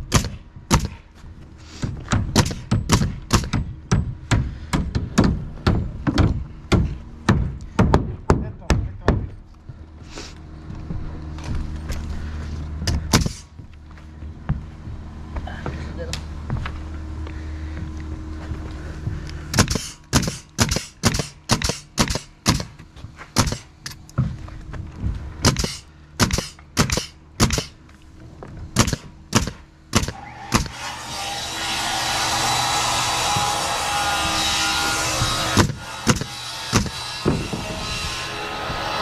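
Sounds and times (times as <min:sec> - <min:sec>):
nails driven into plywood: 0:12.9 - 0:13.5, 0:19.5 - 0:22.8, 0:23.4 - 0:24.0, 0:25.4 - 0:27.8, 0:28.8 - 0:30.9, 0:33.0 - 0:37.8.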